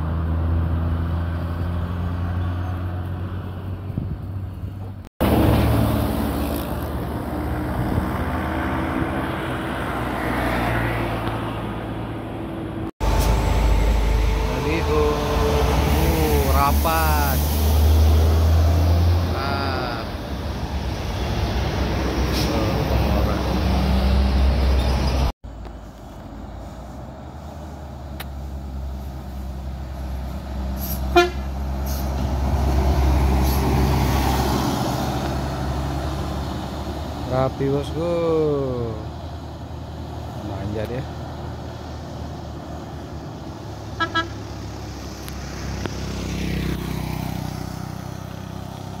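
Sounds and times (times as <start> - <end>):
bus engine pulling uphill: 0.0 - 49.0
diesel engine running: 11.7 - 34.0
wavering bus horn: 13.0 - 17.4, 30.8 - 32.0, 43.9 - 44.5.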